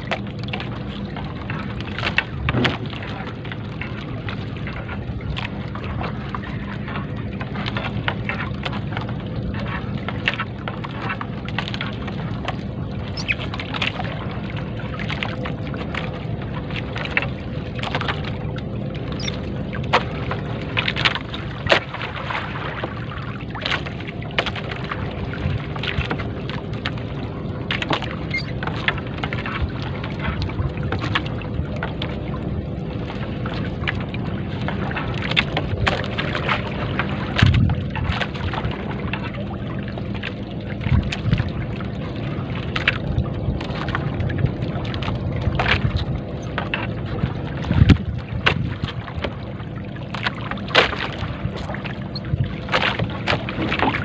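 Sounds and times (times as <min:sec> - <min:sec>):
steady low rumble: 0:00.0 - 0:54.0
wet net hauled over boat side: 0:01.8 - 0:03.5.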